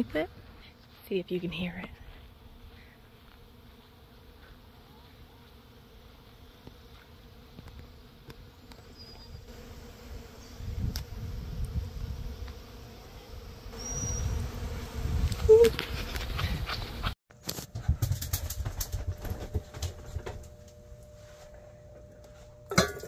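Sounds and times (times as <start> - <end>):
bees buzzing: 2.1 - 17.1
wind on microphone: 10.5 - 12.5, 13.9 - 17.1.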